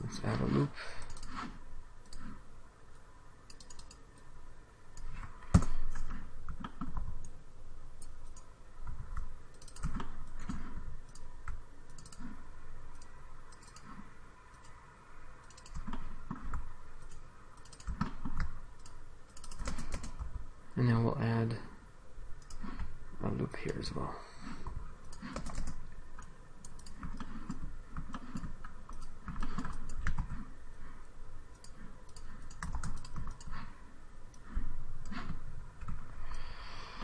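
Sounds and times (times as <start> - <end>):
computer mouse clicks: 1.0 - 4.3, 4.9 - 7.4, 8.0 - 14.8, 15.4 - 20.4, 22.4 - 22.9, 24.6 - 30.5, 31.5 - 33.7, 34.3 - 36.5.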